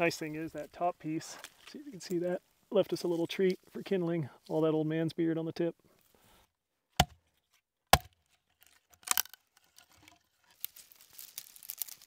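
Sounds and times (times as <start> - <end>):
axe striking log: 7.0 - 7.2, 7.9 - 8.2
wood cracking apart: 7.9 - 12.0
dry twigs crackling and rustling: 8.3 - 12.0.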